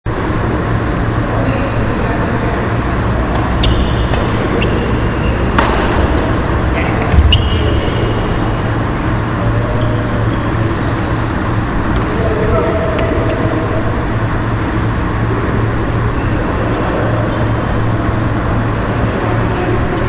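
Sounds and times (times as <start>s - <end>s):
low rumble: 2.8s - 12.0s
shoe squeaks on wooden court: 3.5s - 6.1s, 7.0s - 8.0s, 13.7s - 14.2s, 16.2s - 17.4s, 19.5s - 20.0s
racket striking shuttlecock: 5.5s - 6.4s.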